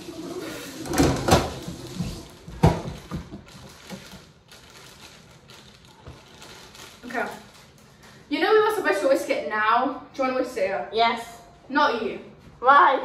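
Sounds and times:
plastic bag crinkling: 2.3 - 8.3.

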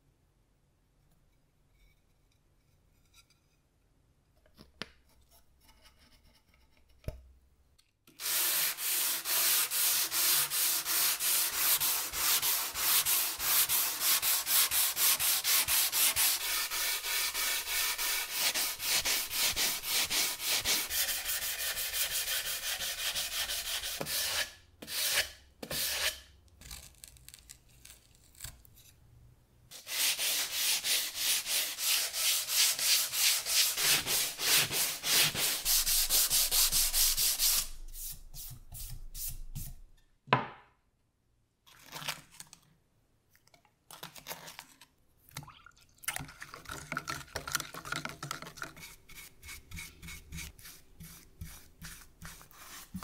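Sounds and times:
sandpaper rubbing on wood: 8.2 - 26.2, 29.7 - 39.7.

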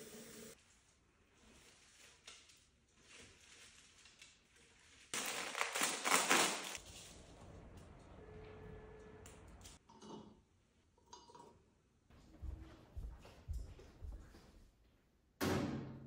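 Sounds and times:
paper wrapping crackling: 1.5 - 7.4.

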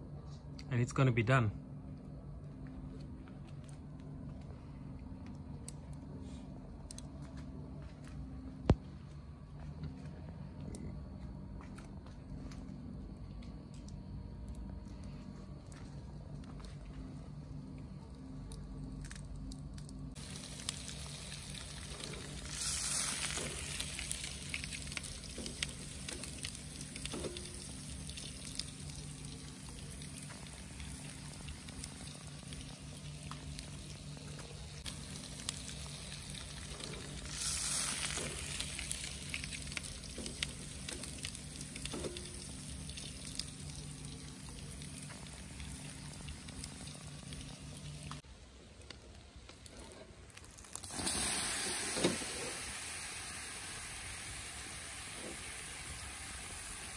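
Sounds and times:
coals crackling: 1.7 - 56.9
fish sizzling on a grill: 19.0 - 48.2, 49.6 - 56.9.

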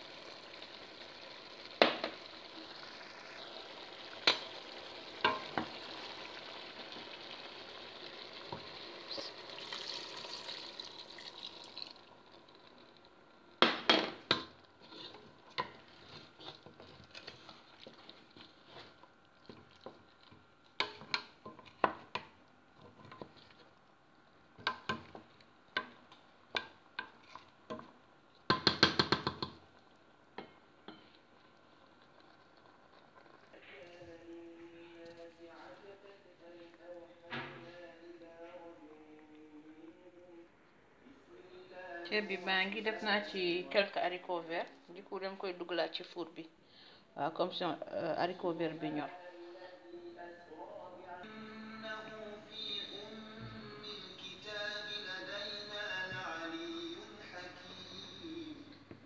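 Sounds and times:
meat sizzling in a pot: 0.0 - 23.7, 24.6 - 29.8
wooden spoon knocking against pot: 28.5 - 29.6.

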